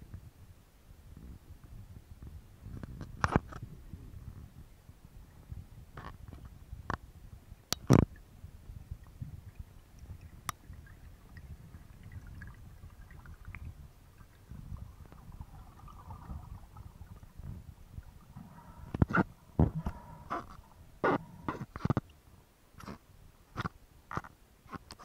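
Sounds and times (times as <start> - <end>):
underwater rumble of moving water: 3.6 - 21.8
sharp clicks and knocks: 18.4 - 22.1.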